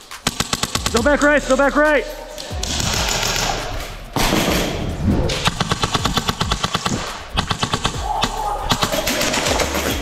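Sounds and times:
airsoft guns firing full auto: 0.2s - 1.0s.

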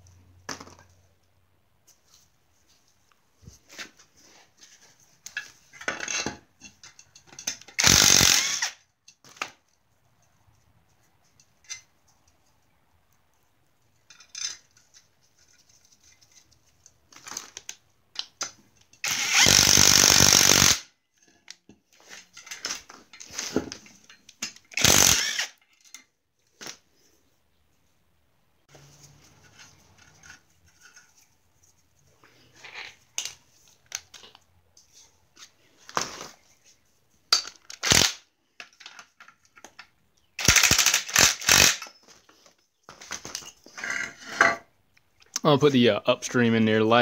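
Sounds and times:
power tool driving bolts: 7.5s - 8.8s, 19.0s - 20.9s, 24.5s - 25.6s, 37.7s - 38.2s, 40.4s - 42.0s
metal parts clinking: 14.0s - 16.3s.

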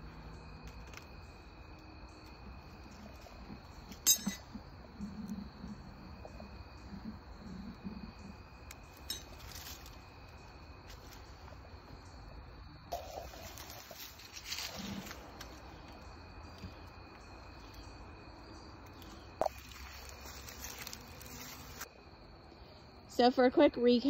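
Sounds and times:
crickets chirring: 0.0s - 24.0s
sharp clink: 4.0s - 4.5s.

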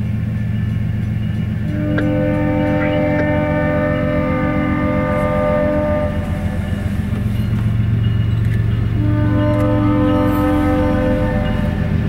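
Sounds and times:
diesel engine low throb: 0.0s - 12.0s
locomotive air horn chord: 1.6s - 7.8s, 8.8s - 12.0s.

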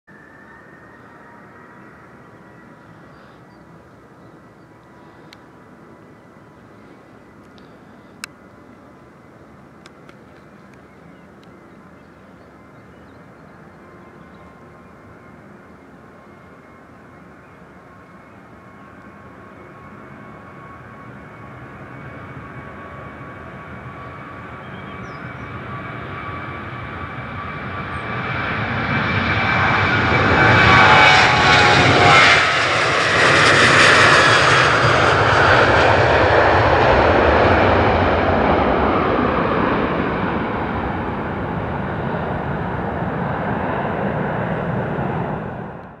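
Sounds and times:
jet engines whining: 0.1s - 46.0s.

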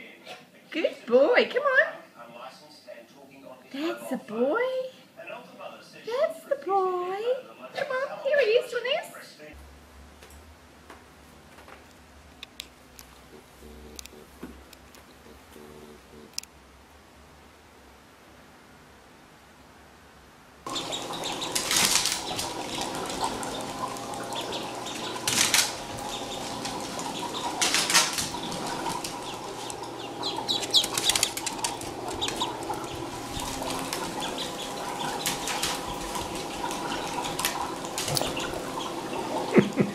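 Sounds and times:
steady hum: 13.2s - 18.2s, 20.4s - 39.9s
small bird flapping wings: 20.7s - 39.8s.

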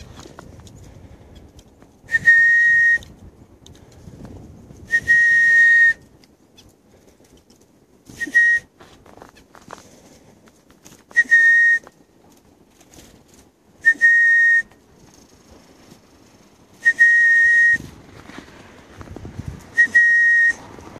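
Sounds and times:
person whistling one note: 2.1s - 3.2s, 4.9s - 6.1s, 8.1s - 8.7s, 11.1s - 12.0s, 13.8s - 14.8s, 16.8s - 17.9s, 19.8s - 20.6s.

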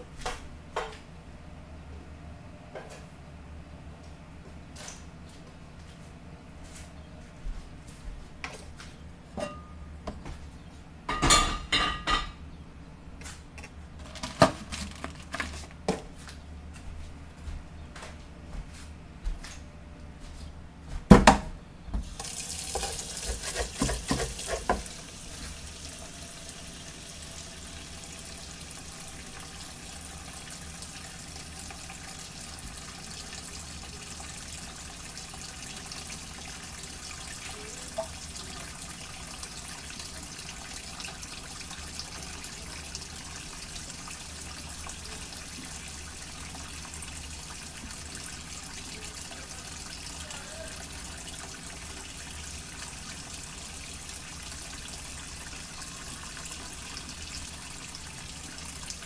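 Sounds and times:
tap running into sink: 22.0s - 25.6s.

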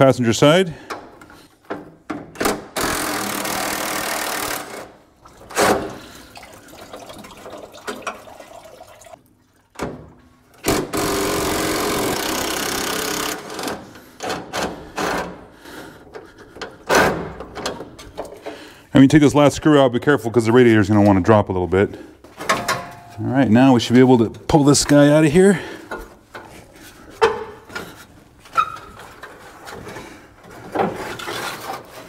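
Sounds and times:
impact driver hammering bolts: 0.9s - 4.9s, 10.6s - 15.4s
handling noises: 22.2s - 32.0s
clanks of tools and metal: 22.3s - 23.2s, 25.8s - 32.0s.

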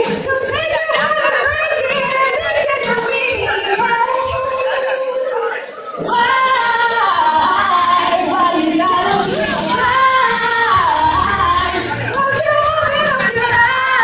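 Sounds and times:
girl singing through microphone: 0.0s - 5.3s, 6.0s - 14.0s.

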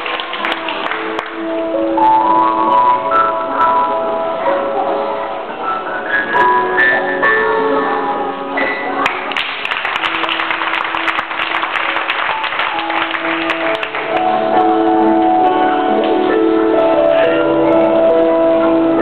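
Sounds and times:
applause: 0.0s - 1.4s, 9.0s - 14.4s
background music sustained notes: 0.0s - 19.0s.

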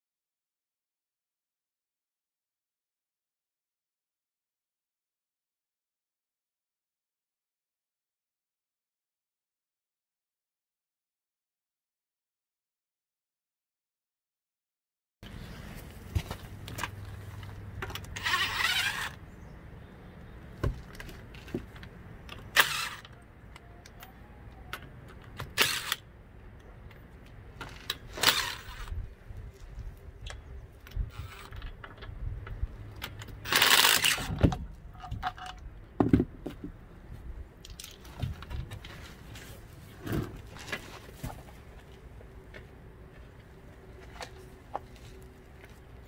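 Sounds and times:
small clicks and handling noises: 37.6s - 39.2s.

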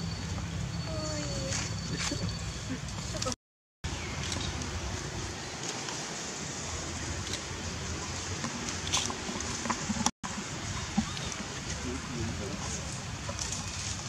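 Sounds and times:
outdoor background hiss: 3.9s - 14.0s.

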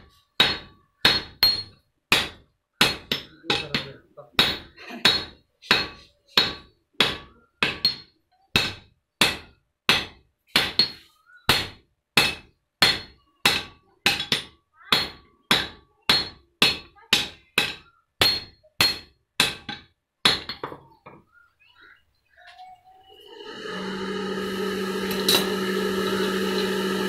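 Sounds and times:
hammer striking iron on anvil: 0.4s - 20.6s.

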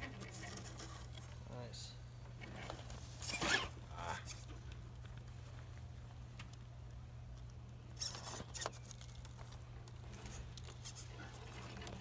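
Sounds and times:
toy car scraping on rock: 0.0s - 1.3s, 2.4s - 4.4s, 8.0s - 9.2s.

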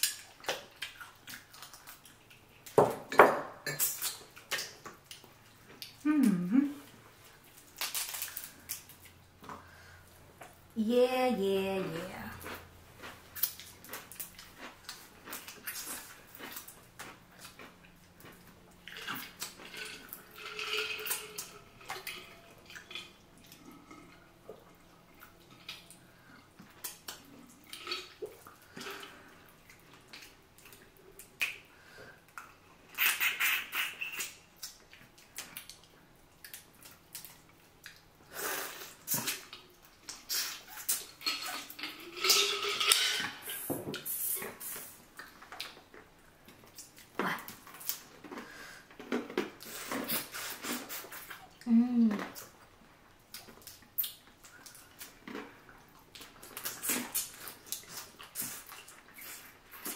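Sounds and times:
wet chewing and lip smacking: 0.0s - 2.8s, 3.7s - 9.6s, 12.4s - 41.9s, 44.5s - 59.9s
slurping: 49.6s - 51.6s.

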